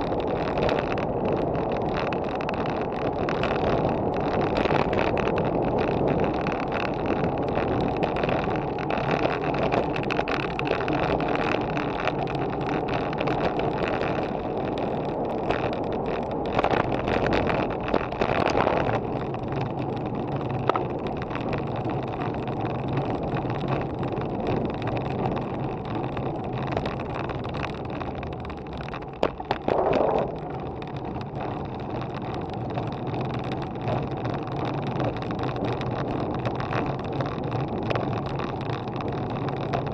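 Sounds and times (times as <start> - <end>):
bike tyres rolling on asphalt: 0.0 - 39.9
small rattles and knocks: 0.0 - 39.9
wind rushing over microphone: 0.0 - 39.9.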